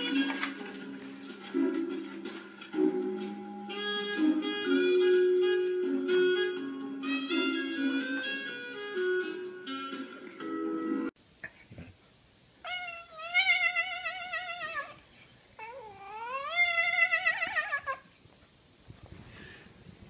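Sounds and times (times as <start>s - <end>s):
cat yowling: 12.6s - 15.0s, 15.6s - 18.1s.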